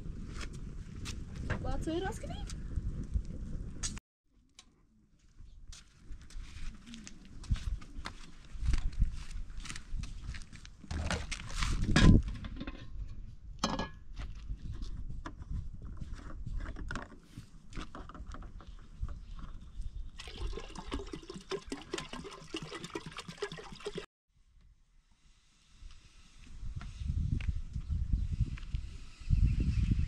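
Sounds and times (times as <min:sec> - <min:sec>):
liquid pouring and splashing: 0:20.2 - 0:24.1.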